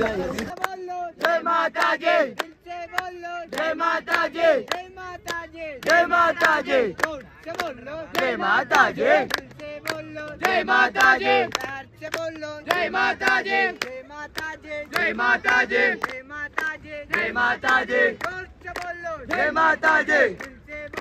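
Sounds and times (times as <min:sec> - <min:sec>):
group chanting: 0:01.2 - 0:02.5, 0:03.2 - 0:04.8, 0:05.8 - 0:07.1, 0:08.1 - 0:09.4, 0:10.0 - 0:11.7, 0:12.6 - 0:16.2, 0:16.8 - 0:18.5, 0:19.2 - 0:21.0.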